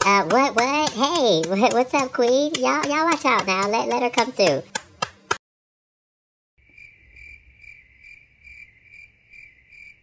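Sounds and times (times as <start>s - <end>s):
crickets chirping: 6.6s - 10.0s.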